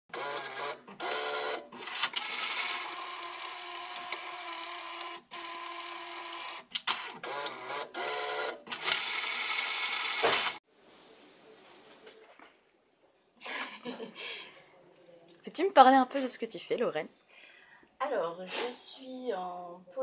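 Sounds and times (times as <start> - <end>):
label printer motor whirring: 0.1 - 10.6.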